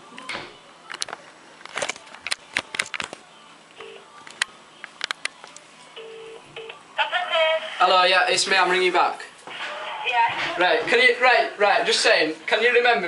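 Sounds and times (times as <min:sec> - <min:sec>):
two-tone telephone ringing tone: 0:06.0 - 0:06.8.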